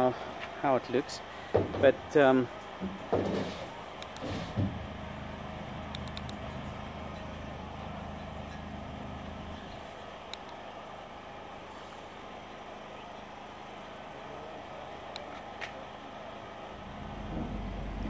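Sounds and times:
generator engine hum: 0.0s - 18.0s
faint clicks: 10.2s - 10.6s.

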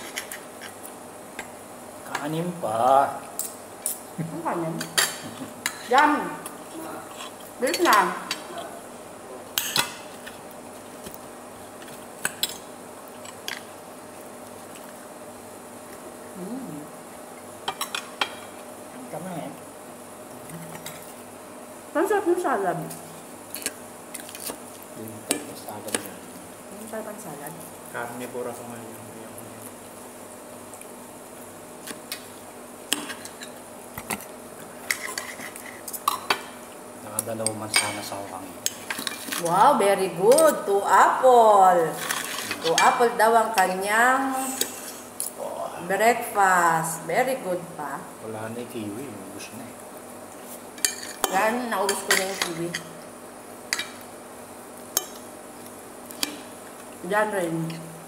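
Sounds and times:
faint steady hum: 0.0s - 58.0s
cutlery clinking on a plate: 37.7s - 38.0s.

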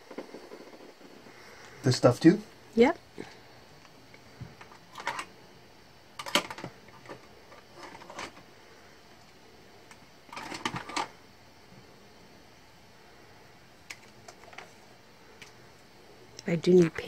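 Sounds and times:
plastic supplies rattling in a bin: 10.3s - 11.1s.

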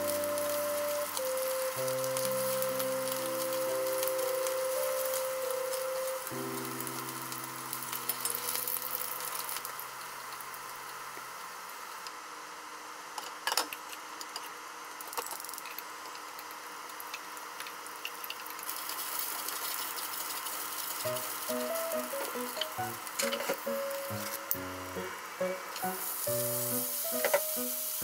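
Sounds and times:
oil sizzling in a frying pan: 0.0s - 12.1s, 16.5s - 28.0s.

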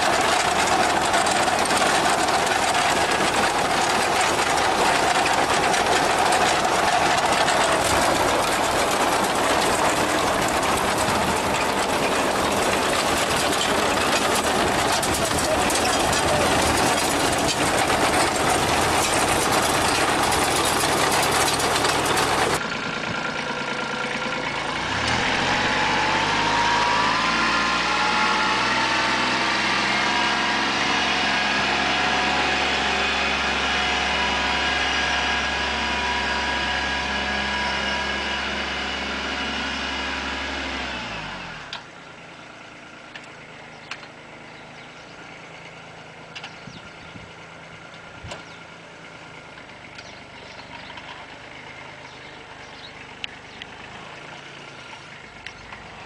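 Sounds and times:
harvesting machine clattering: 0.0s - 22.8s
tractor engine running: 0.0s - 56.0s.

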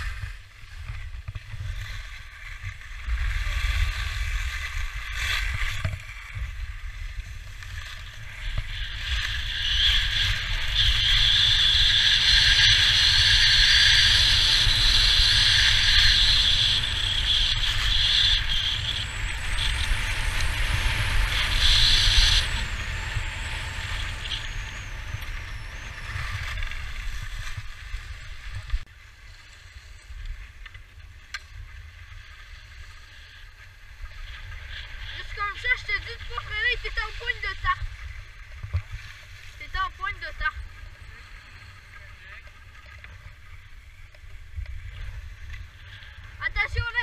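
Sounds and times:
skis scraping over snow: 0.0s - 47.0s
wind buffeting microphone: 8.2s - 28.9s.

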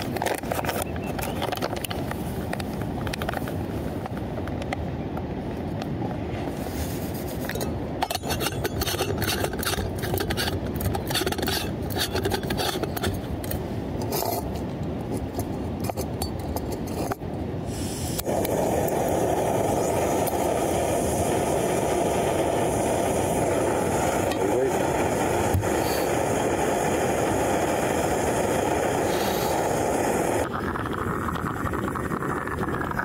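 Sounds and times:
metal scraping and clinking: 7.4s - 17.2s
gas stove burner rushing: 17.7s - 30.5s.

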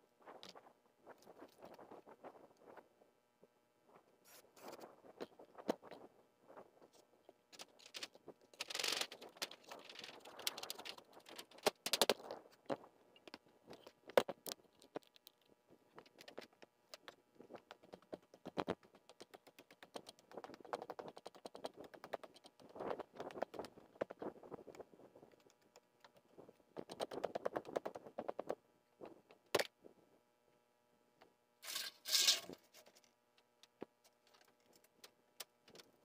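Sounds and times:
scraping rustle: 31.6s - 33.1s.

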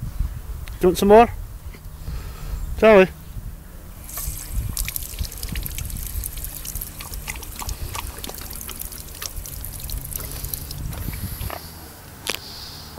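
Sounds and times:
water trickling into stone basin: 4.0s - 11.6s.

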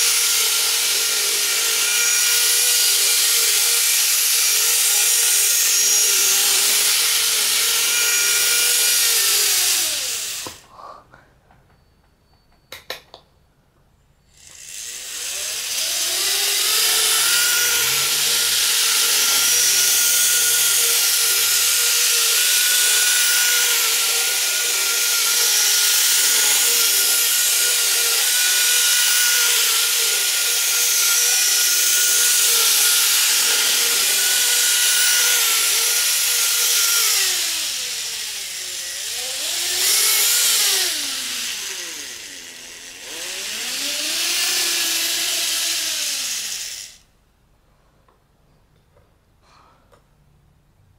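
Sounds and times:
model train motor whine: 0.0s - 10.6s, 14.3s - 47.0s.

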